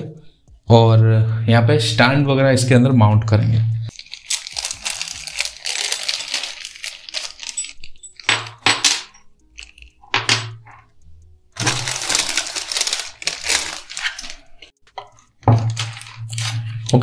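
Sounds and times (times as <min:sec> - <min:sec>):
plastic bag crinkling: 0:03.9 - 0:10.1, 0:11.5 - 0:17.0
plastic packaging rustling: 0:03.9 - 0:10.9, 0:11.5 - 0:17.0.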